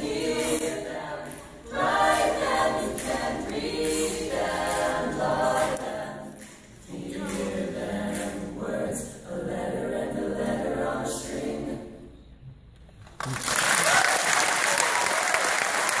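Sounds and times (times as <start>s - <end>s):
mixed choir singing a cappella: 0.0s - 12.4s
audience applauding: 13.1s - 16.0s.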